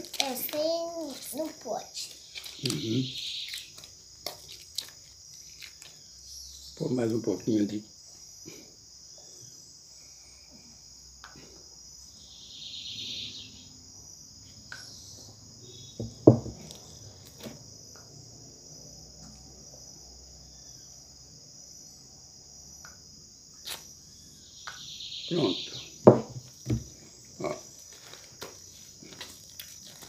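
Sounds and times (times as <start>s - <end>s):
crickets chirring: 0.0s - 30.0s
knock on table: 16.0s - 16.6s, 26.0s - 26.9s.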